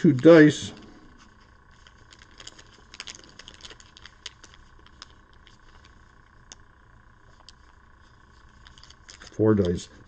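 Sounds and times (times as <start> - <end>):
plastic bag of dice crinkling: 1.3 - 6.6, 8.3 - 9.9.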